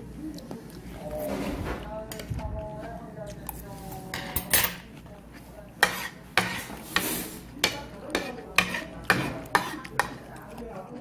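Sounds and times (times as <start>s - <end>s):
metal spoon scraping a plate: 5.8s - 10.2s.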